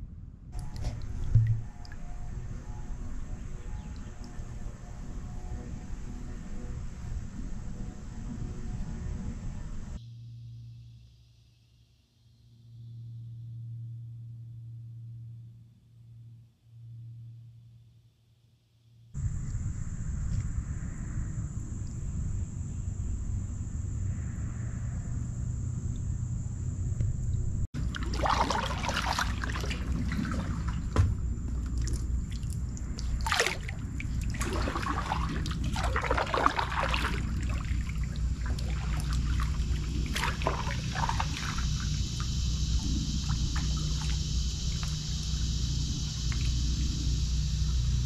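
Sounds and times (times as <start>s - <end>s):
low steady rumble: 0.0s - 10.6s, 19.2s - 48.0s
kayak paddle splashing water: 27.8s - 47.1s.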